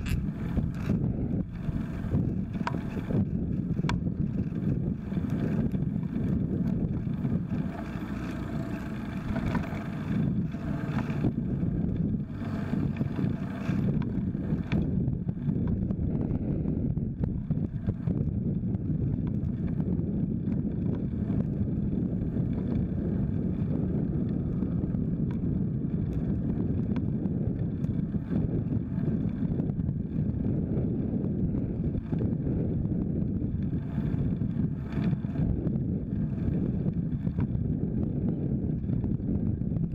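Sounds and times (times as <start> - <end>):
small clicks: 0.0 - 1.8, 2.4 - 5.8, 6.6 - 11.4
wind rumble on microphone: 0.0 - 39.9.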